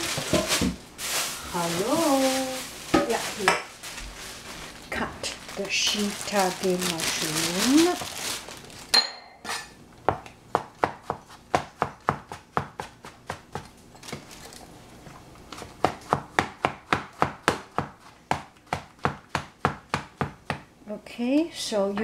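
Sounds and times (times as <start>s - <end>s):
knife chopping on cutting board: 10.1s - 13.7s, 15.6s - 20.7s.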